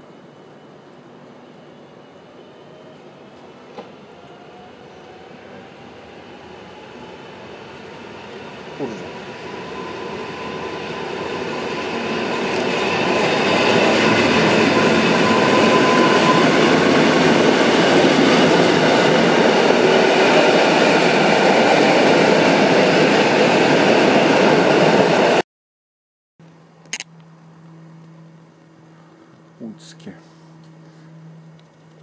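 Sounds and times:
electric train rolling along platform: 0.0 - 25.4
faint hum: 26.4 - 32.0.

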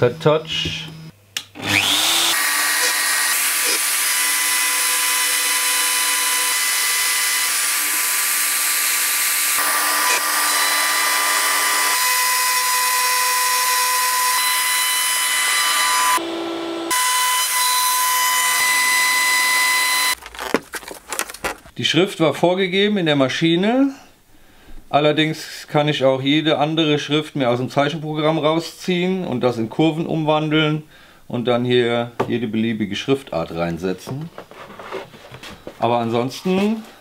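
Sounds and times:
router spindle whining: 0.1 - 20.2.

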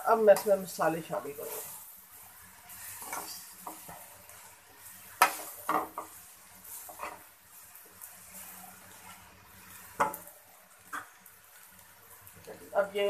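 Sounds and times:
faint sizzle: 0.0 - 13.0
metal fork scraping a wok: 2.8 - 4.0, 6.8 - 7.2.

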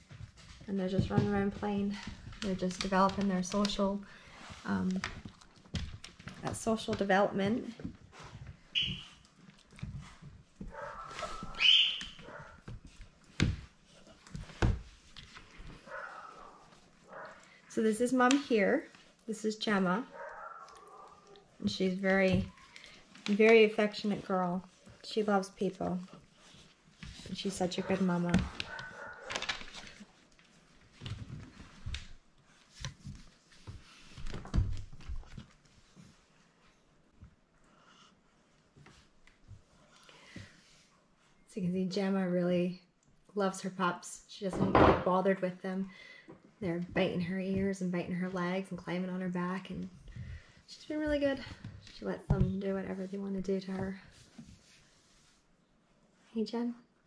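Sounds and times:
puppies thumping and scuffling: 0.0 - 4.0, 4.9 - 17.3, 26.0 - 36.2.

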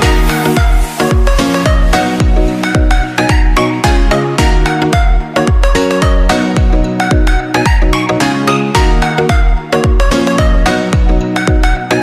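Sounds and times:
deep kick drums: 0.0 - 7.8
electronic music with held chords: 0.0 - 12.0.

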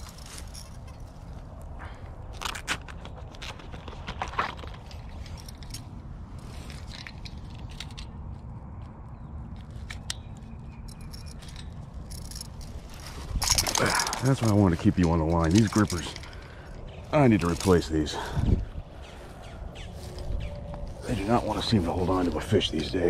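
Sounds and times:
steady low rumble: 4.8 - 23.0.

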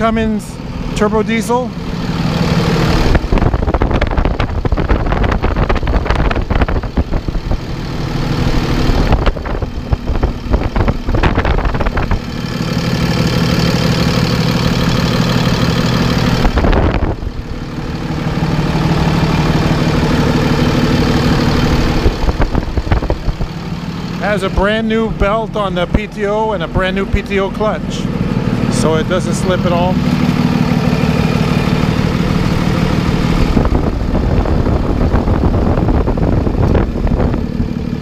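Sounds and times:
diesel engine idling: 0.0 - 38.0.

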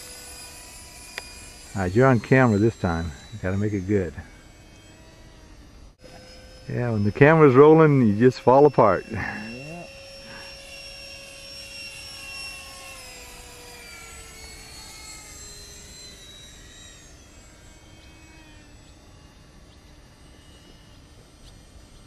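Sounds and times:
model plane motor whining: 0.0 - 22.0.

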